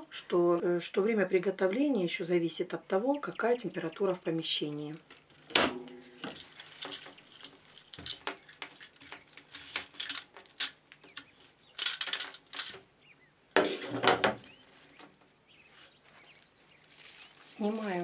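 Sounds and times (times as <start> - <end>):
dry pepper pieces rattling: 3.1 - 4.4, 6.2 - 12.8, 16.9 - 18.0
mesh sheet rustling: 5.0 - 12.9, 13.6 - 18.0.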